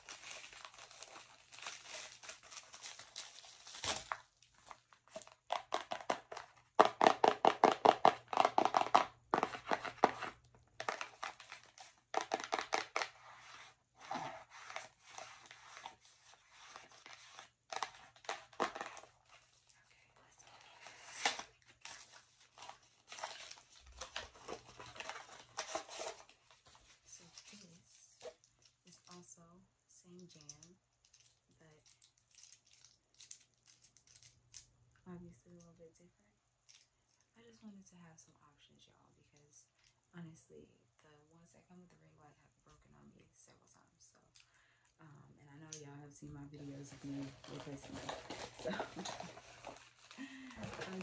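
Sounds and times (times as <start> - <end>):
packaging crinkling: 0.0 - 13.2, 14.5 - 27.6, 47.0 - 51.0.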